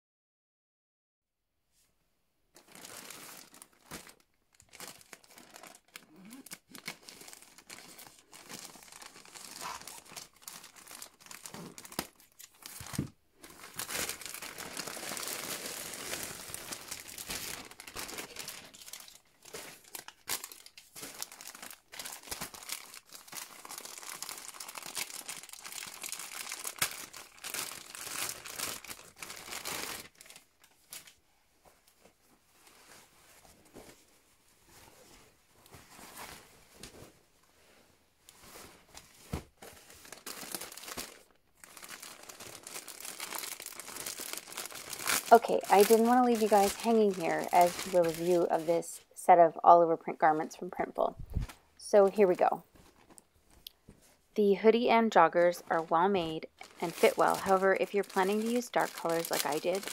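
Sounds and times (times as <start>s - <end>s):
plastic mailer bag crinkling: 2.5s - 31.2s, 38.4s - 49.0s, 54.6s - 59.9s
plastic garment bag crinkling: 2.5s - 49.1s, 50.1s - 59.9s.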